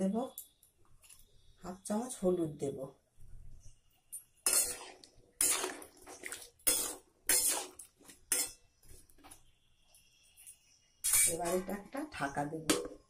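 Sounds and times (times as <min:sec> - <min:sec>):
metal spatula scraping metal pan: 0:04.4 - 0:08.6, 0:11.0 - 0:11.9.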